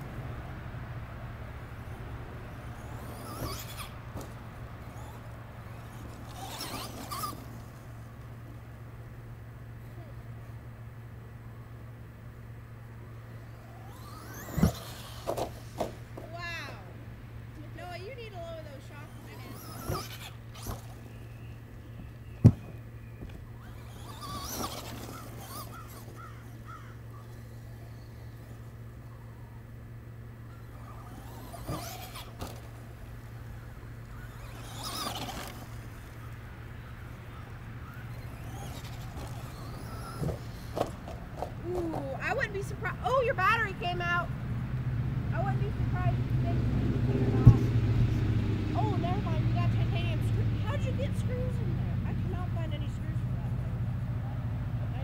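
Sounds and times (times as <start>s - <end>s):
electric toy truck motor whining: 0.0s - 44.3s
steady low hum: 0.0s - 55.0s
short chirping calls: 18.4s - 29.8s.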